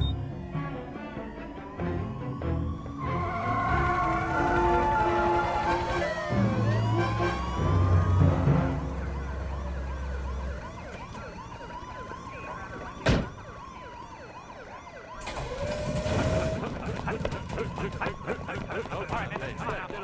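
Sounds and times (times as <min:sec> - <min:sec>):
police sirens wailing: 0:00.0 - 0:20.0
car door slamming: 0:13.0 - 0:13.4
running boots pattering: 0:16.7 - 0:20.0.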